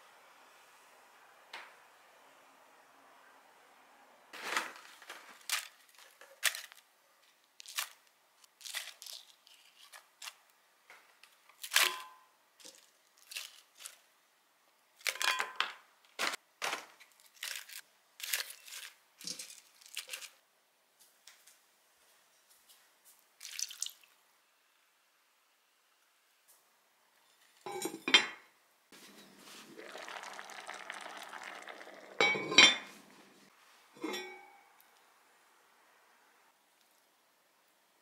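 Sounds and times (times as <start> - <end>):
food being layered into a pot: 15.0 - 20.4, 23.2 - 24.3, 28.9 - 35.0.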